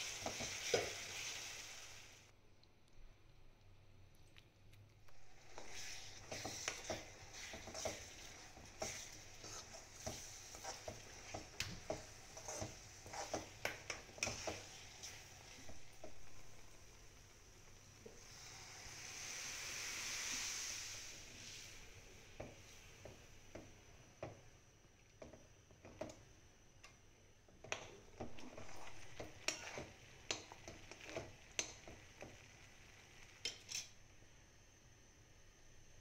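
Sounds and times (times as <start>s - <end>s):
liquid sizzling in hot pan: 0.0s - 2.3s, 5.1s - 36.0s
spoon clinking and scraping pan: 5.5s - 15.2s, 27.6s - 32.0s, 33.4s - 34.0s.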